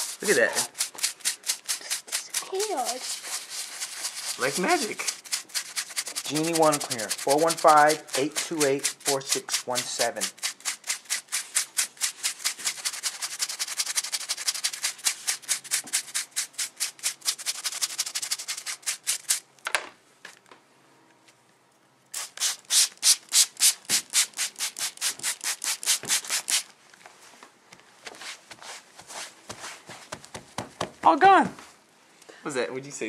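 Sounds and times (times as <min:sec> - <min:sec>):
fabric rubbed against itself: 0:00.0 - 0:19.2, 0:28.1 - 0:30.8.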